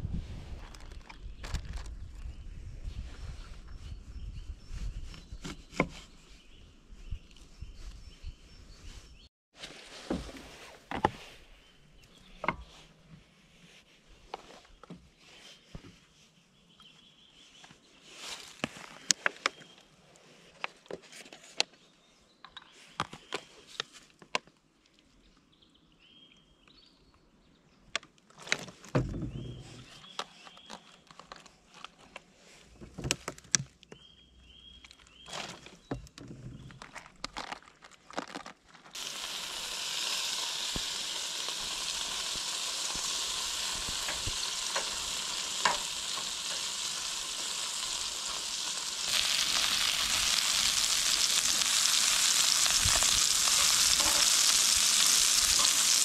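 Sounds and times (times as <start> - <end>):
food sizzling in a hot pan: 39.0 - 56.0.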